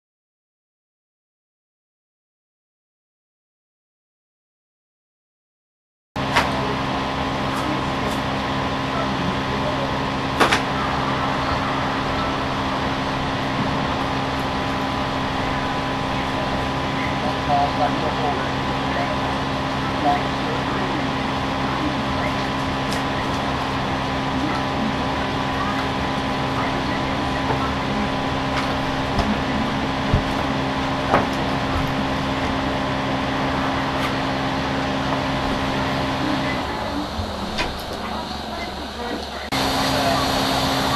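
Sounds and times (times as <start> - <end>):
low hum: 6.2 - 40.9.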